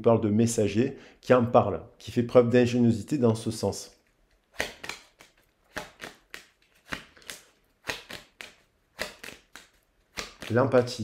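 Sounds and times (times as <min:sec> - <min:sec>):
cards being shuffled: 0:04.3 - 0:11.0.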